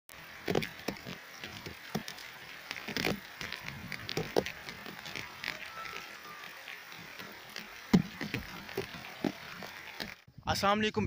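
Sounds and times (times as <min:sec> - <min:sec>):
heavy rain falling: 0:00.1 - 0:10.3
raindrops tapping close by: 0:00.1 - 0:10.3.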